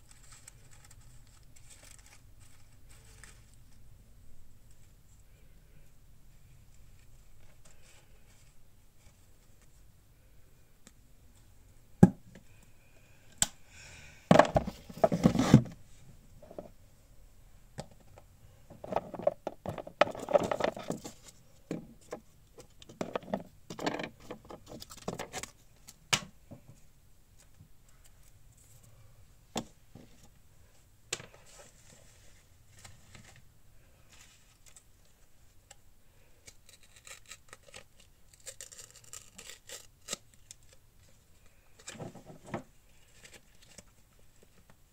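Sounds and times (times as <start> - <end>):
paper rustling and shuffling: 0.0 - 3.9, 14.3 - 15.8, 18.7 - 23.5, 31.2 - 35.7.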